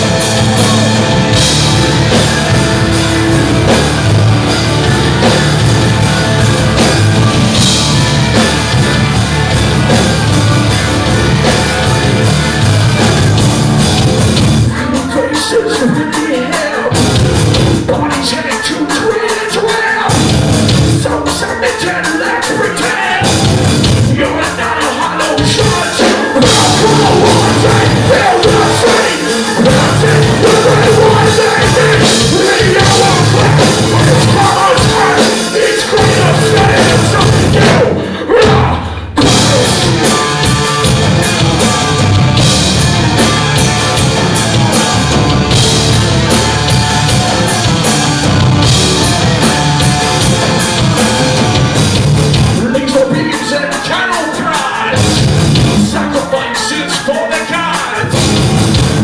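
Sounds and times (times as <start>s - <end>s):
drums: 0.0s - 59.0s
metal band playing live: 0.0s - 59.0s
sung and shouted vocals: 14.7s - 17.0s, 21.0s - 40.6s, 52.6s - 58.3s.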